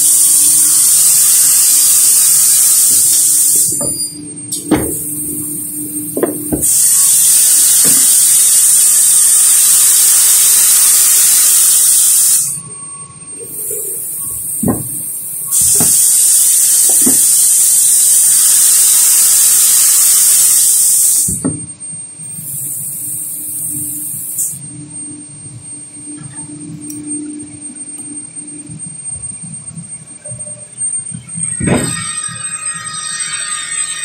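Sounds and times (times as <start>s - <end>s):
hiss with high whistle: 0.0s - 21.6s, 22.3s - 24.6s, 30.4s - 34.0s
wooden panels knocking: 14.6s - 15.0s.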